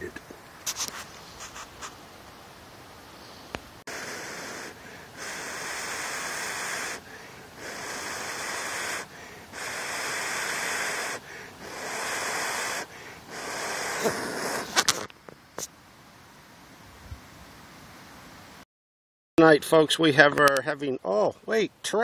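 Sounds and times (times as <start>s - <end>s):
person blowing hissing breaths: 3.2s - 14.8s.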